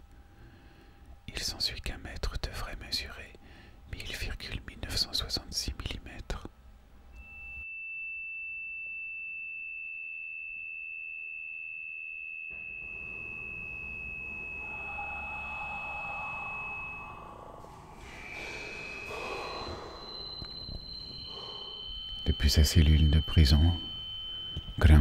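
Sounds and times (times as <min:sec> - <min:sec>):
high pure tone: 0:07.1 - 0:25.0
short high tones: 0:11.9 - 0:25.0
breathy noise: 0:14.3 - 0:22.4.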